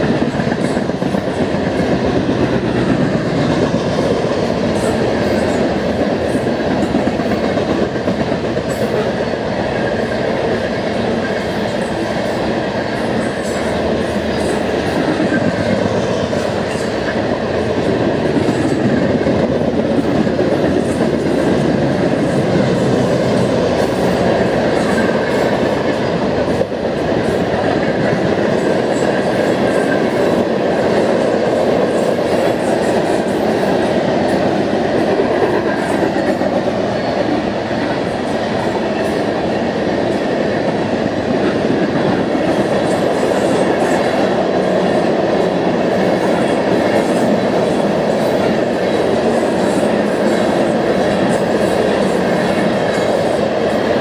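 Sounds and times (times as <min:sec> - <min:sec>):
steel wheels rumbling on rail: 0:00.0 - 0:54.0.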